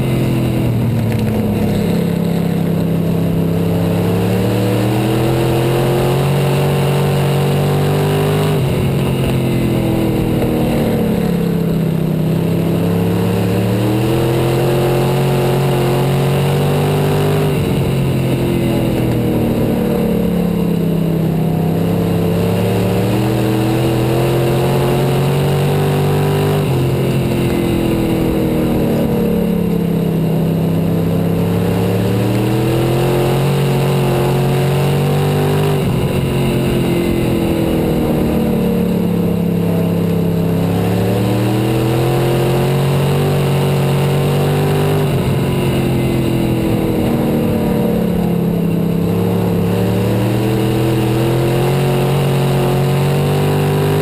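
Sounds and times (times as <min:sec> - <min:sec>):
race car engine revving: 0:00.0 - 0:54.0.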